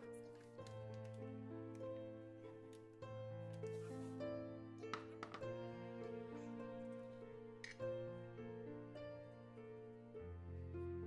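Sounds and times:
soft instrumental music: 0.0s - 11.0s.

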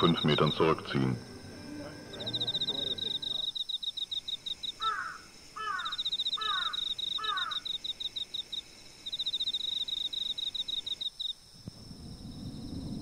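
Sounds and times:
crickets chirping: 0.0s - 13.0s
short falling bird calls: 4.8s - 7.7s.

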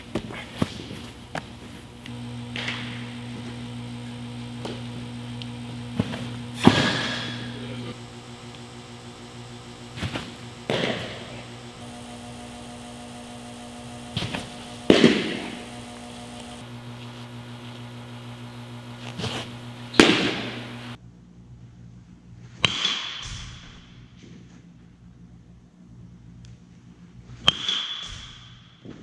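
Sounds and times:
steady low hum: 0.0s - 22.6s.

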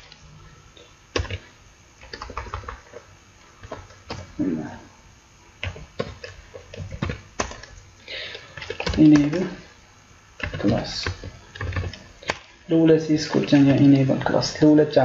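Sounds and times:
computer keyboard typing: 1.1s - 4.3s, 5.6s - 9.6s, 10.4s - 12.5s.

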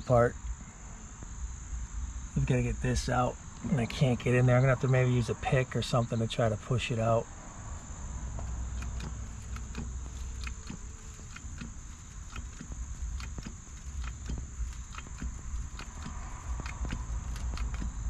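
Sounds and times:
insects chirring: 0.0s - 18.0s
light clicks and ticks: 8.4s - 18.0s.

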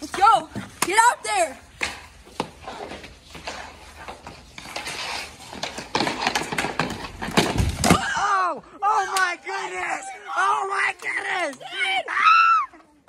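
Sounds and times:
skates scraping on ice: 0.0s - 8.0s
hockey sticks and puck clacks: 0.0s - 8.1s, 10.7s - 11.8s.

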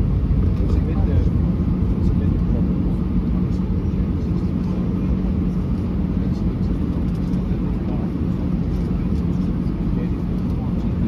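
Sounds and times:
airplane cabin engine rumble: 0.0s - 11.0s.

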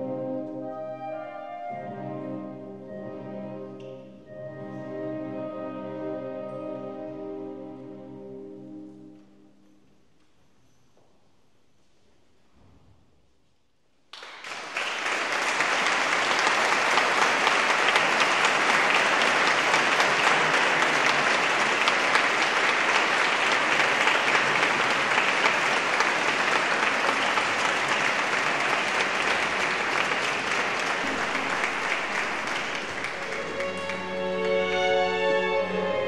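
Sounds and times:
audience applause: 14.1s - 36.0s.

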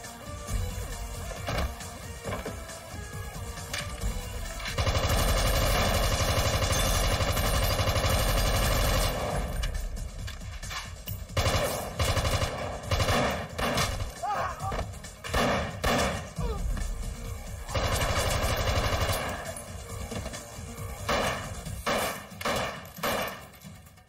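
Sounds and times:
rapid automatic gunfire: 4.7s - 9.5s, 11.4s - 14.1s, 17.7s - 19.5s.

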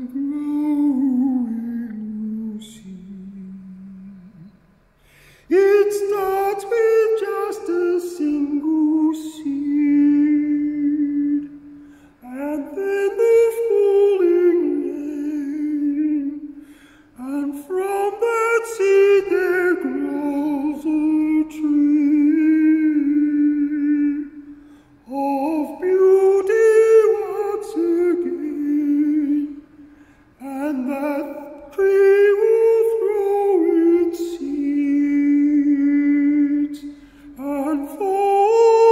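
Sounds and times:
man singing in a high voice: 0.0s - 4.7s, 5.4s - 38.9s
short breaths: 4.9s - 5.5s, 11.7s - 12.2s, 16.5s - 17.2s, 24.4s - 25.0s, 29.6s - 30.4s, 36.9s - 37.4s.

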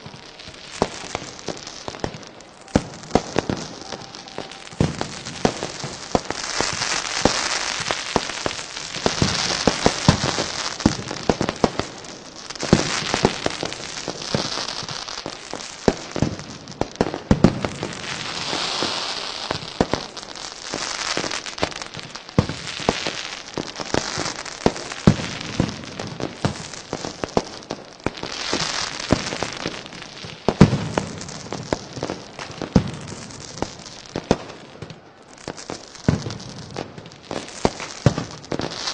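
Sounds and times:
firecracker bangs and crackling: 0.0s - 38.9s
rockets hissing crackle: 0.0s - 38.9s.

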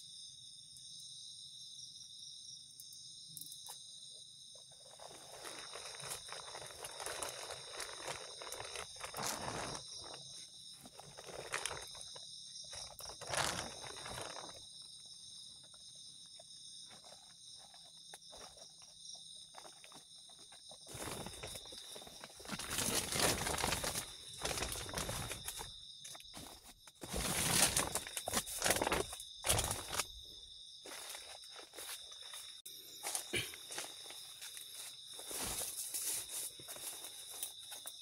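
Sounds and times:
insects calling: 0.0s - 38.0s
plastic tarp rustling: 4.8s - 14.8s, 20.7s - 30.2s, 33.3s - 37.4s
footsteps on dry leaves: 5.0s - 12.0s, 20.9s - 25.7s, 26.4s - 30.2s, 30.9s - 37.8s.

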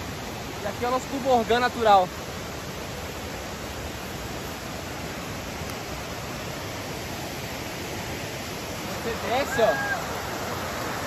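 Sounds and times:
river rushing over rapids: 0.0s - 11.0s.

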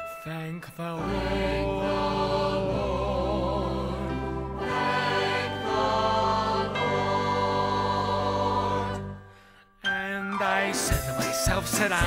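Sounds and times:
show tune accompaniment chords: 1.0s - 9.5s.

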